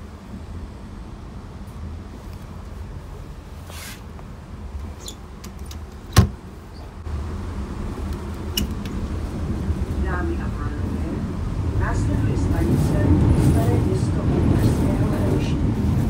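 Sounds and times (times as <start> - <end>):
passenger train rumble: 0.0 - 16.0.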